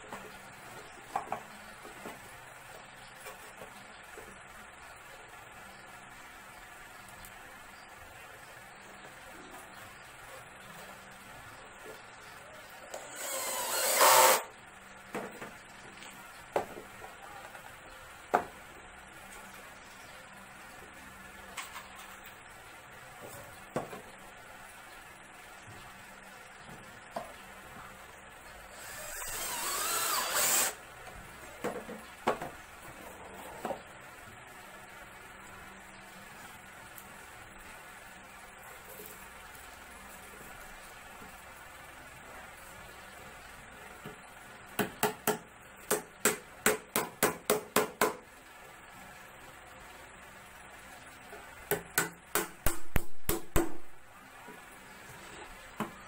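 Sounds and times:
power drill boring into plywood: 13.0 - 14.5, 28.7 - 30.8.

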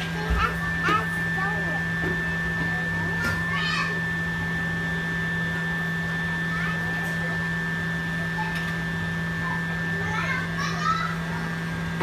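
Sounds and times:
faint child voices: 0.0 - 1.9, 2.6 - 4.1, 6.4 - 7.5, 8.1 - 11.6
machine humming with high whine: 0.0 - 12.0.

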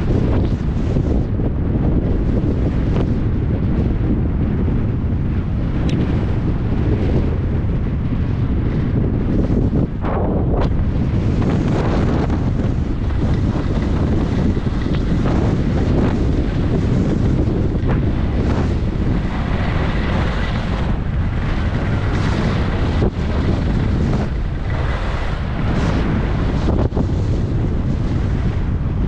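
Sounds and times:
wind buffeting microphone: 0.0 - 29.0
skis scraping on snow: 9.4 - 27.4.

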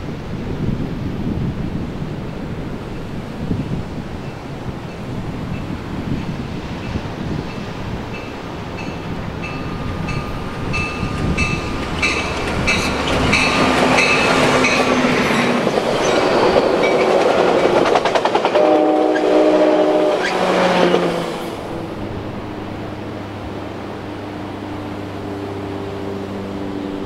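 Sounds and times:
crossing bell ringing: 6.8 - 17.3
train wheels clattering: 6.8 - 19.6
train horn chord: 18.5 - 21.4.

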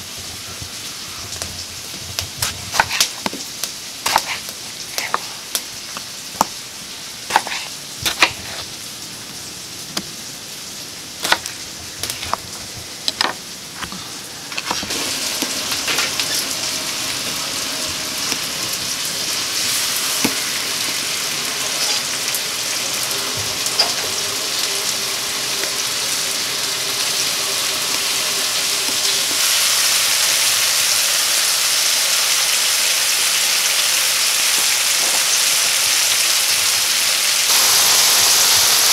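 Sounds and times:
meat and onions sizzling: 0.0 - 38.9
knife cutting on wooden board: 2.4 - 3.3, 4.0 - 5.4, 7.3 - 8.7, 11.2 - 12.4.

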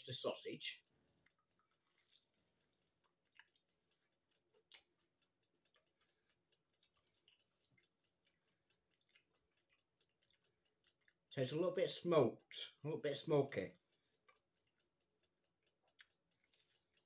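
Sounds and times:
chewing crunches: 1.1 - 11.3, 14.2 - 17.0.

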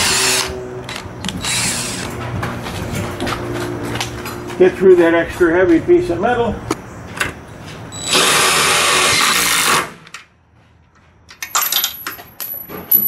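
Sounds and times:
cordless drill boring through steel: 1.4 - 2.1.

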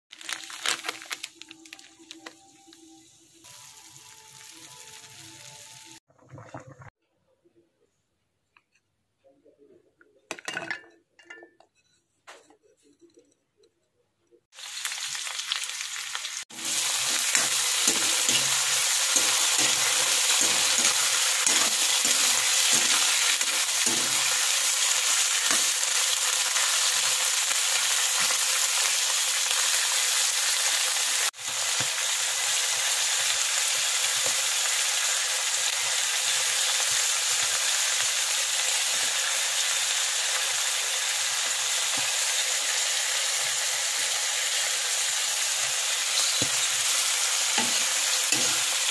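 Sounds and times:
vegetables sizzling in oil: 0.1 - 6.0, 14.5 - 48.9
metal spatula stirring: 16.7 - 25.8.

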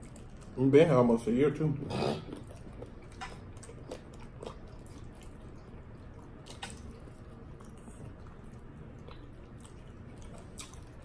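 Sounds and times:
wet chewing and lip-smacking: 0.0 - 1.0, 1.8 - 11.0
small mouth clicks: 6.4 - 7.0, 9.1 - 11.0.

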